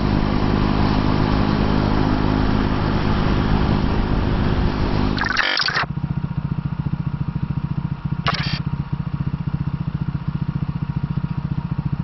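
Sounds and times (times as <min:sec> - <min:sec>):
motorcycle engine idling: 0:05.9 - 0:12.0.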